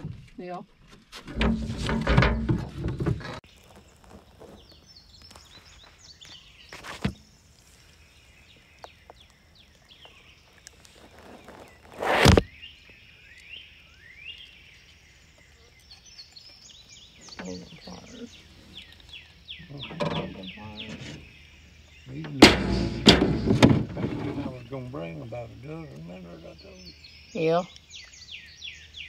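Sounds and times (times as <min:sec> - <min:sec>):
birds chirping: 0:00.0 - 0:29.0
handling knocks: 0:01.2 - 0:03.4, 0:22.3 - 0:24.6.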